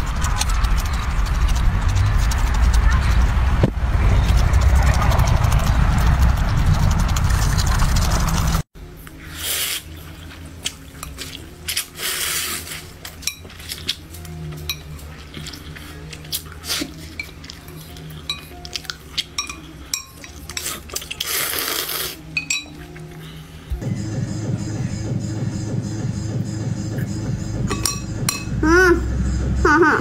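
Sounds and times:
slurping noodles and soup: 0:09.2 - 0:13.0, 0:15.2 - 0:17.2, 0:20.6 - 0:22.3.

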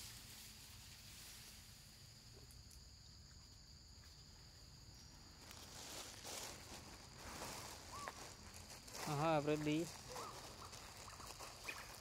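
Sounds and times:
soft hiss: 0:00.0 - 0:03.6.

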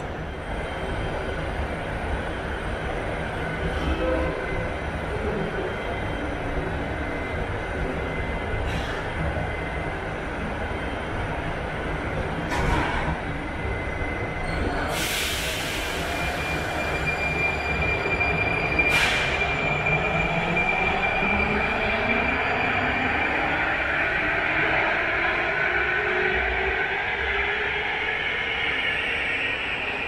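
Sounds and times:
train high whine: 0:07.5 - 0:30.0
hiss of air: 0:14.9 - 0:16.4
pneumatic doors closing: 0:18.9 - 0:19.5.

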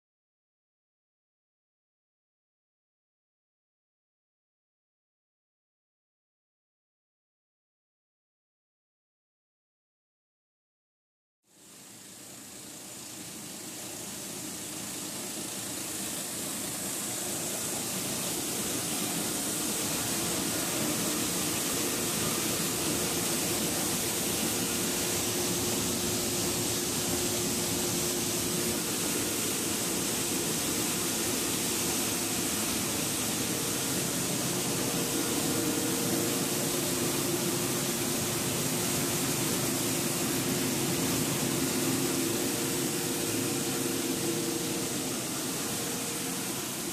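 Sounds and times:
wire granulator machine hissing: 0:11.5 - 0:46.9.

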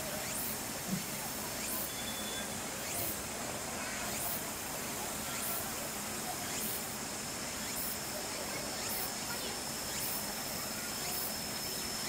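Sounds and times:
steady hissing background noise: 0:00.0 - 0:12.0.

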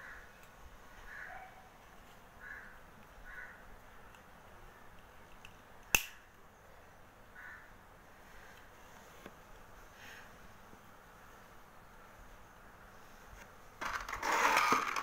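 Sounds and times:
plastic bricks clicking together: 0:13.8 - 0:15.0.

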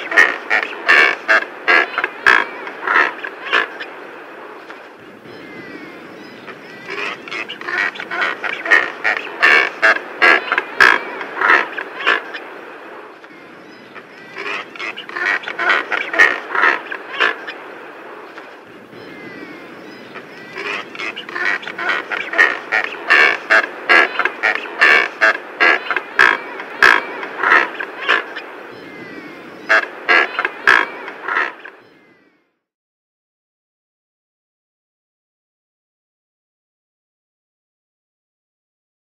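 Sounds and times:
seabird rapid short calls: 0:00.0 - 0:04.0, 0:05.3 - 0:12.5, 0:13.4 - 0:17.7, 0:19.0 - 0:32.2.

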